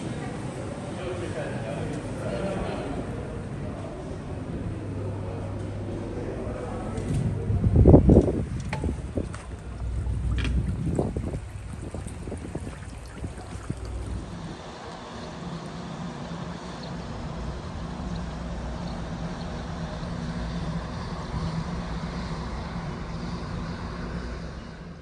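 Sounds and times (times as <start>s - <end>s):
ship engines droning: 0.0s - 25.0s
rush of wind and water: 7.3s - 24.3s.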